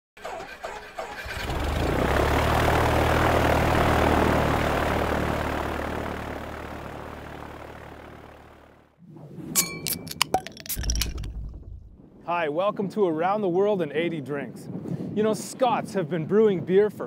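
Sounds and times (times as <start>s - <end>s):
propeller plane engine droning: 1.3s - 9.0s.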